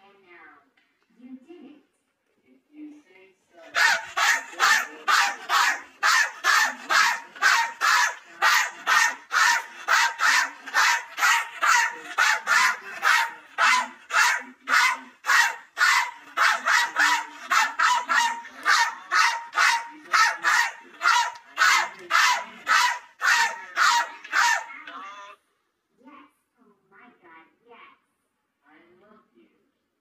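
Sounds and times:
man barking like a dog: 3.7 - 24.8.

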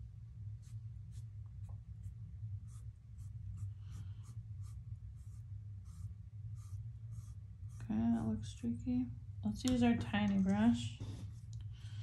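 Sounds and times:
steady low hum: 0.0 - 12.0
paintbrush scratching on canvas: 2.0 - 8.0.

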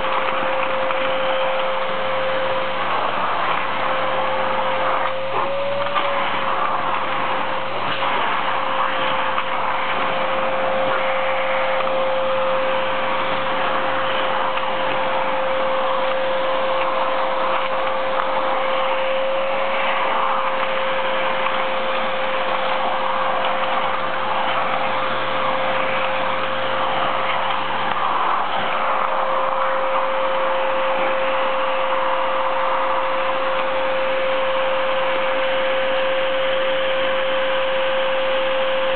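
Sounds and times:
vacuum cleaner running: 0.0 - 38.9.

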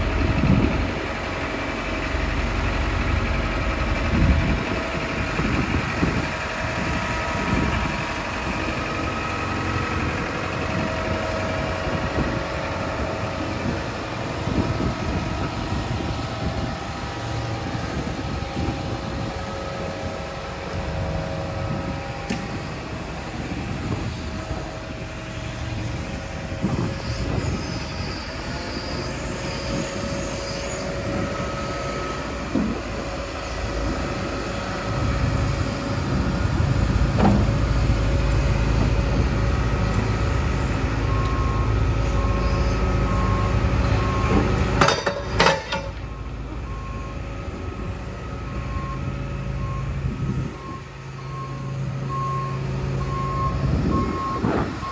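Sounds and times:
excavator diesel engine running: 0.0 - 54.9
metal clanks: 44.8 - 46.0.

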